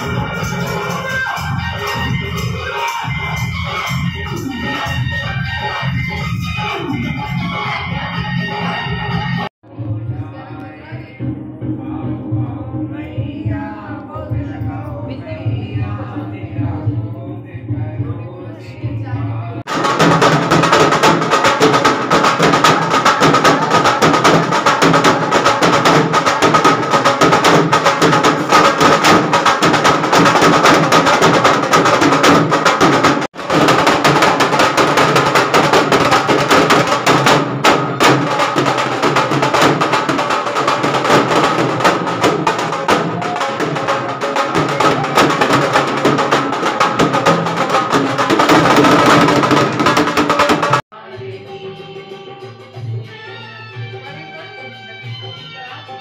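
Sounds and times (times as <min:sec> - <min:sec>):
hand drums beating: 0:00.0 - 0:06.3, 0:19.7 - 0:50.8
clacking hand percussion: 0:00.0 - 0:08.8, 0:19.7 - 0:50.8.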